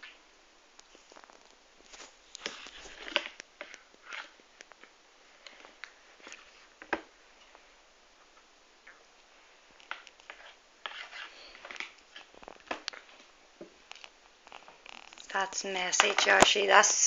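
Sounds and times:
soft rustles: 0.8 - 8.5.

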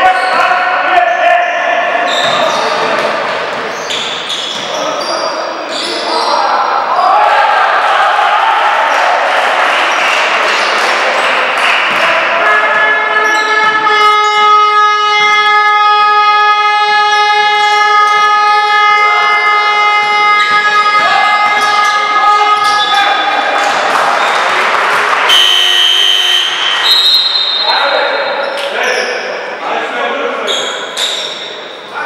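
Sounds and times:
basketball game noise: 0.0 - 32.0
long horn tone: 13.9 - 21.0, 25.3 - 26.6.

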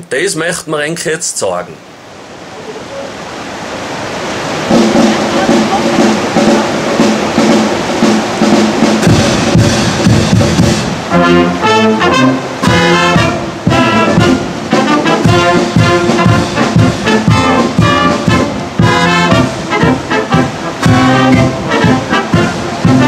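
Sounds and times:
brass band playing: 4.6 - 23.0.

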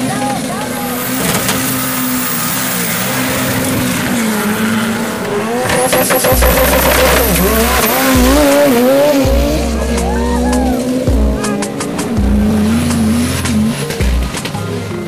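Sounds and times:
truck engines revving: 0.0 - 15.0
heavy low rumble: 5.3 - 14.4.

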